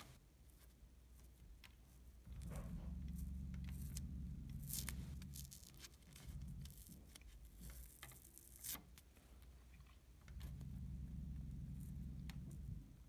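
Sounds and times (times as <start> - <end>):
adhesive pad tearing and scratching: 2.4 - 9.1.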